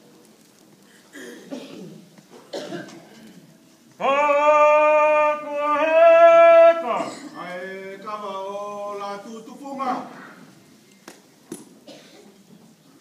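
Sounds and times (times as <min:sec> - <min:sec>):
person coughing: 0:01.1 - 0:03.1, 0:07.0 - 0:07.4, 0:11.8 - 0:12.4
loud chanted ceremonial call: 0:04.0 - 0:09.8.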